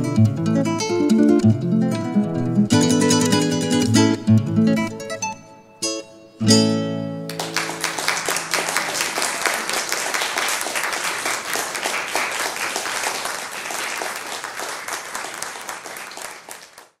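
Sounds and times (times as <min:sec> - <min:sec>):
audience applauding: 0:07.3 - 0:17.0.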